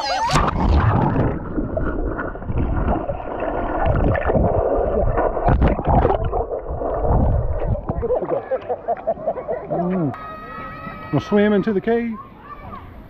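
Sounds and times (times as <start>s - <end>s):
muffled underwater rumble: 0.0s - 10.0s.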